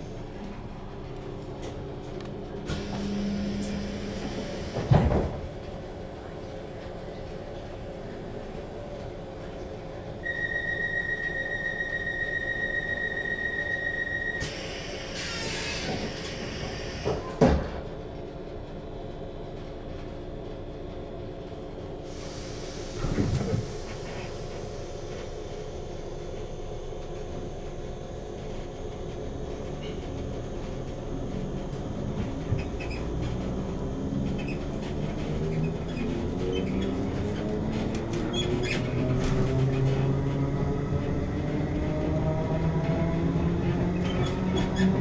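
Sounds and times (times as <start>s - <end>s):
train equipment humming: 0.0s - 45.0s
sliding doors closing: 2.6s - 5.6s
door warning tone: 10.2s - 14.6s.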